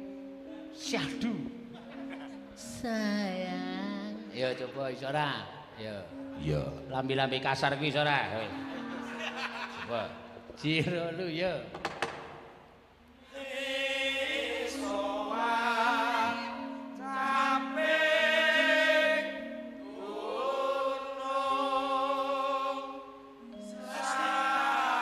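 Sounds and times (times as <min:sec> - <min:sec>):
soft held gamelan notes: 0:00.0 - 0:11.4, 0:14.5 - 0:25.0
woman singing with heavy vibrato: 0:02.6 - 0:04.3.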